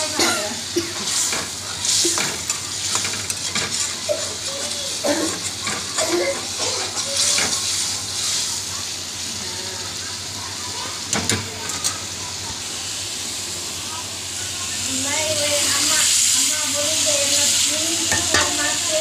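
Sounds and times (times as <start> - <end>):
oil sizzling: 0.0 - 19.0
metal spatula scraping pan: 18.1 - 18.8
spatula clinking on pan: 18.1 - 18.8.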